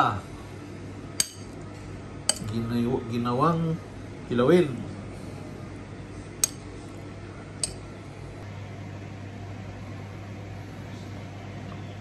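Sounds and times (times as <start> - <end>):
steady low hum: 0.0 - 12.0
metal spoon clinking bowl: 1.2 - 1.6, 2.3 - 2.5, 6.4 - 6.7, 7.6 - 7.8.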